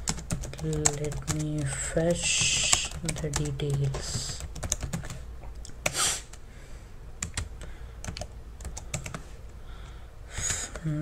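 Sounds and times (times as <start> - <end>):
keyboard typing clicks: 0.0 - 1.8, 7.2 - 9.2.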